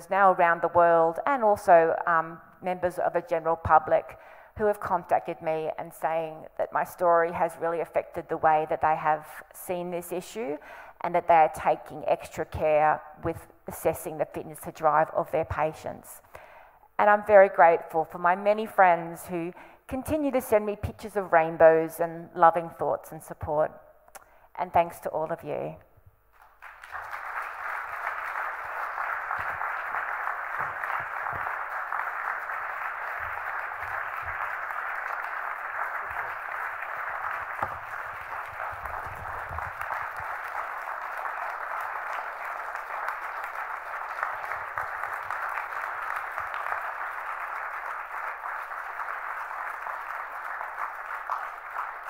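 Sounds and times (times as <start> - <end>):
audience applauding: 26.4 - 52.0.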